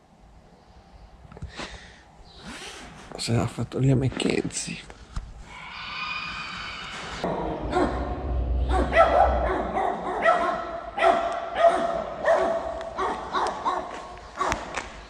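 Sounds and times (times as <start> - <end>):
dog barking: 8.7 - 14.7.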